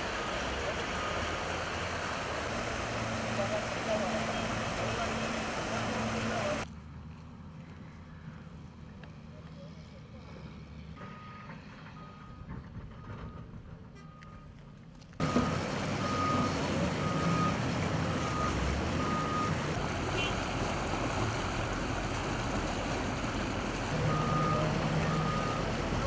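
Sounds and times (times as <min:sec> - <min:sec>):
engine rumble: 0:00.0 - 0:26.0
reversing alarm beeping: 0:15.2 - 0:17.6, 0:18.2 - 0:19.5, 0:24.0 - 0:25.7.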